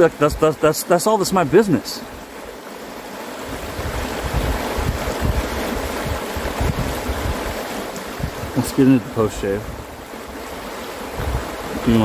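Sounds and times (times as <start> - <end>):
river rapids rushing: 0.0 - 12.0
wind rumble on microphone: 3.5 - 10.0, 11.1 - 12.0.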